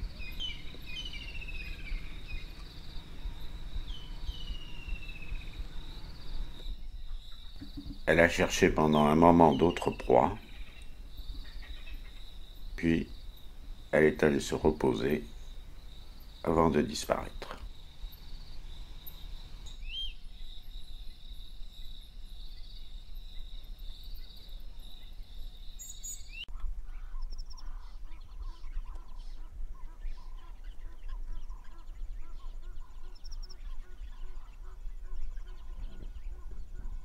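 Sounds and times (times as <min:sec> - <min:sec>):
bird calls: 0:00.0 - 0:21.2, 0:21.8 - 0:37.0
high insect buzz: 0:00.0 - 0:26.4
bird chirps: 0:00.0 - 0:37.0.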